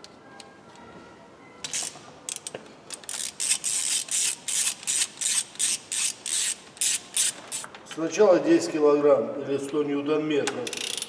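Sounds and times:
ratchet wrench clicking: 0:01.7 - 0:07.7, 0:10.6 - 0:11.0.

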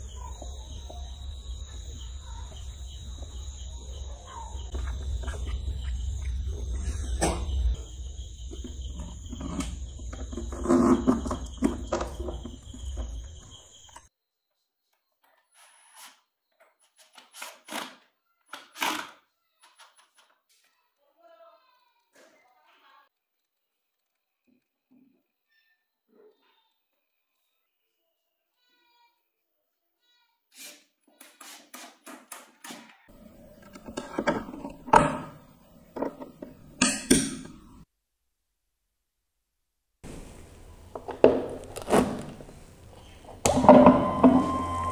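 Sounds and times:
plastic parts knocking and rubbing: 0:08.5 - 0:13.6, 0:40.9 - 0:42.6
steady high-pitched whine: 0:43.5 - 0:44.9.

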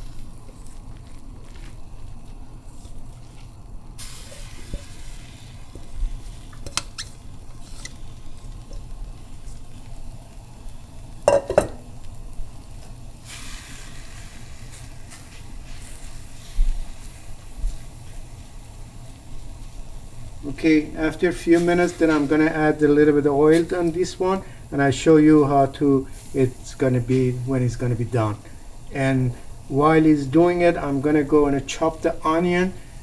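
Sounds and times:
herbs sizzling in a frying pan: 0:00.0 - 0:33.0
spatula knocking on metal pan: 0:11.3 - 0:11.8.

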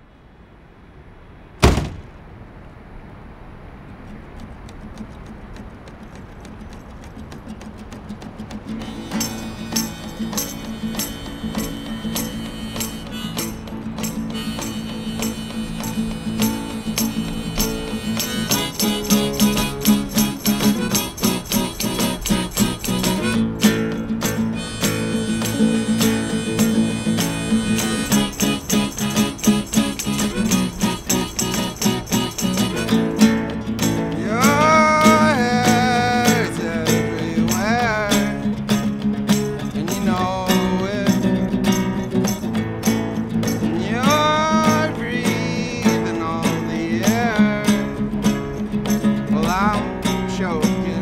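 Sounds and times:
outdoor background hiss: 0:00.0 - 0:51.0
door slam: 0:01.6 - 0:02.3
acoustic guitar picking: 0:04.1 - 0:51.0.

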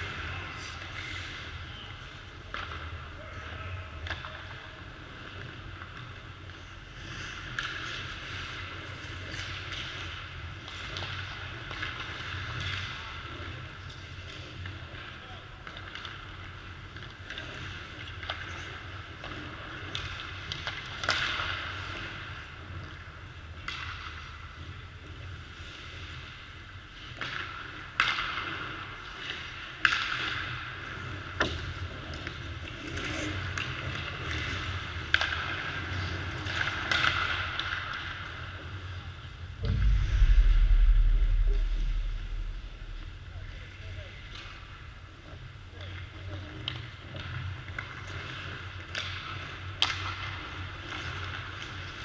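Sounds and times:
deep rumble: 0:39.6 - 0:44.8.

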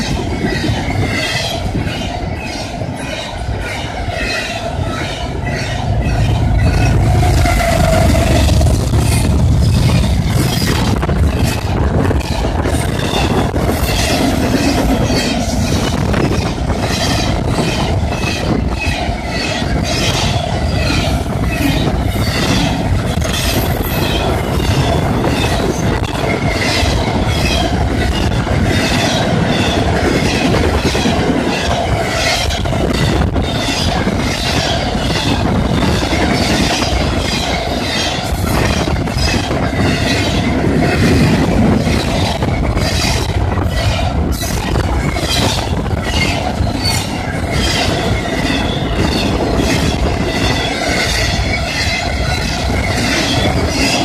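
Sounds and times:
freight train wheels clacking: 0:00.0 - 0:54.0
crossing bell ringing: 0:01.0 - 0:10.0.

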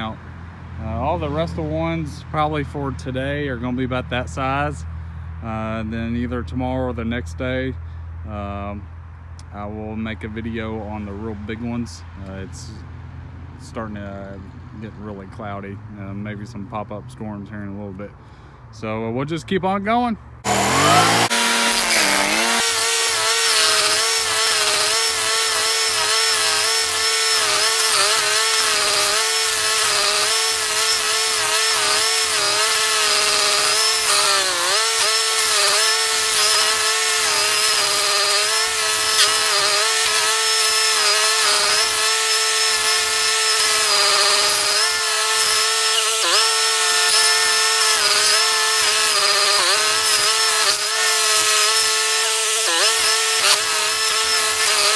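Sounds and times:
stump grinder grinding: 0:20.4 - 0:54.9.

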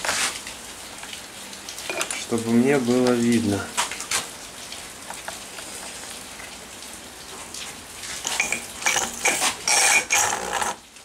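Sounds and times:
metal clinking and scraping: 0:08.2 - 0:10.8.

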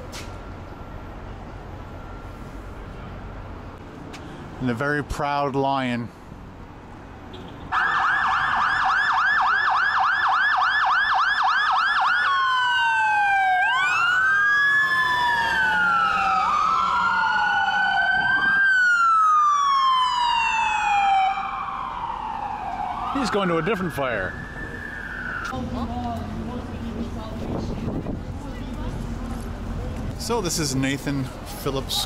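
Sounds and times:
fire truck siren: 0:00.0 - 0:03.0, 0:07.7 - 0:25.8.

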